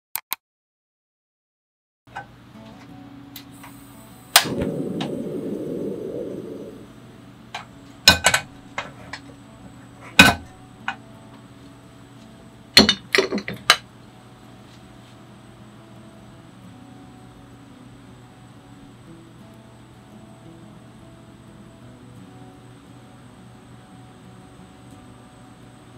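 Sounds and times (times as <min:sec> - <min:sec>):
gas rushing noise: 0:03.5 - 0:08.4.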